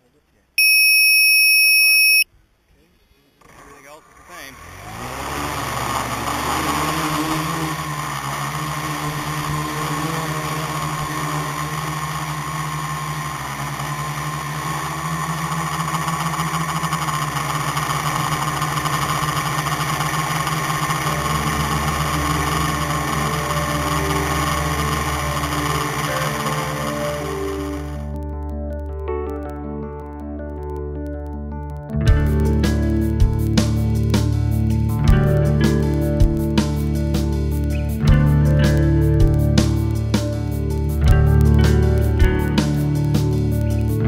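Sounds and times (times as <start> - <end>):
drone motors buzzing whine: 4.7 - 28.1.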